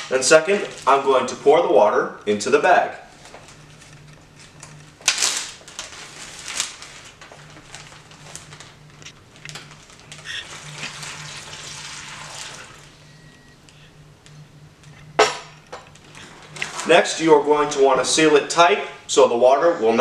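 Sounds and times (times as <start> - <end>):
plastic bag rustling and crinkling: 0.0 - 1.4, 3.1 - 13.0, 15.9 - 18.2
water poured into a bag: 9.7 - 12.9.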